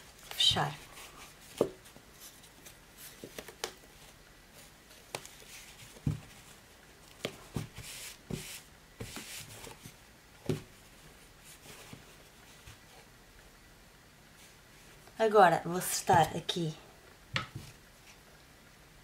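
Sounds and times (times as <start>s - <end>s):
fabric rustle: 0.0s - 10.0s
book knocks and clicks on table: 6.0s - 6.3s, 10.4s - 10.7s, 17.3s - 17.7s.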